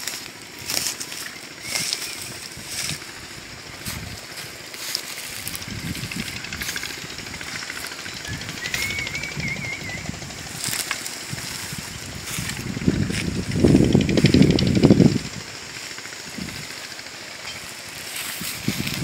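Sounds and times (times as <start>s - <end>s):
bird whistled call: 1.2s - 2.5s, 7.6s - 10.8s.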